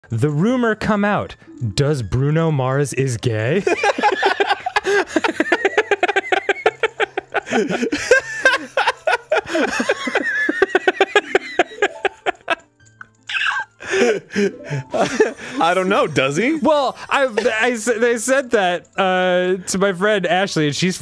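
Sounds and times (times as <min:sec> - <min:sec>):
men laughing hard: 0:03.6 - 0:12.7, 0:13.3 - 0:17.8.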